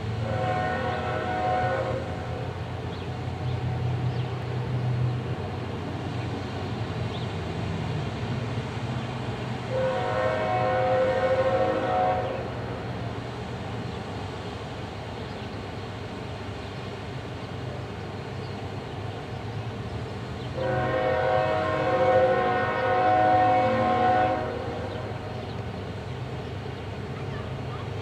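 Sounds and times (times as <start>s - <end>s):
diesel locomotive engine: 0.0s - 28.0s
locomotive horn blasts: 0.2s - 2.2s, 9.7s - 12.5s, 20.6s - 25.2s.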